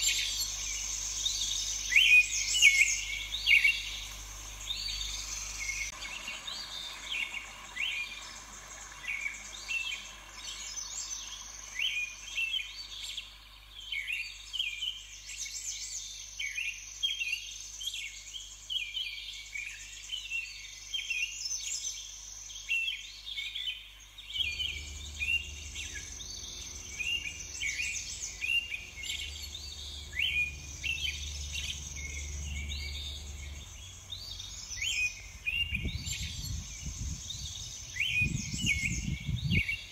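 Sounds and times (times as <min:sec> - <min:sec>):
songbirds chirping and trilling: 0:00.0 - 0:39.9
steady high hiss: 0:00.0 - 0:39.9
low hum: 0:24.3 - 0:39.5.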